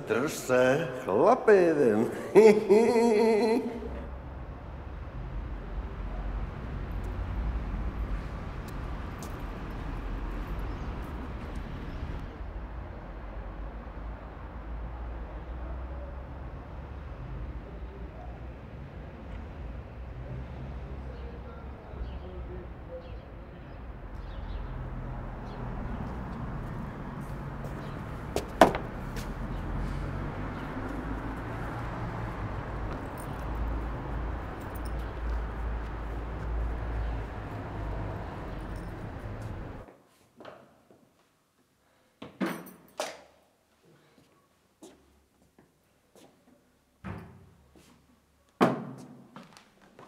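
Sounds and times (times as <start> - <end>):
distant traffic rumble: 0.0 - 39.9
sharp knocks: 28.4 - 28.9.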